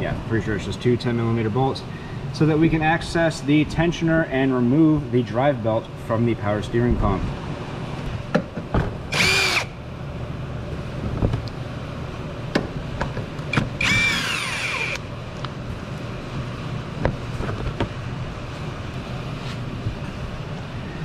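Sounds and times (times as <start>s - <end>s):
steady low hum: 0.0s - 21.0s
power tool motor whine: 9.1s - 9.8s, 13.7s - 15.0s.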